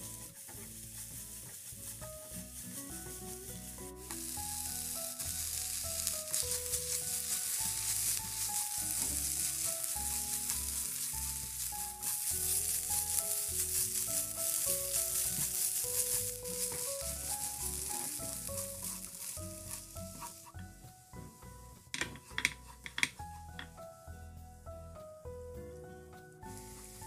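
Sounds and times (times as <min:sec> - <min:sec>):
food sizzling in frying pan: 0:00.0 - 0:21.5, 0:26.4 - 0:27.0
spatula stirring in pan: 0:02.7 - 0:20.7.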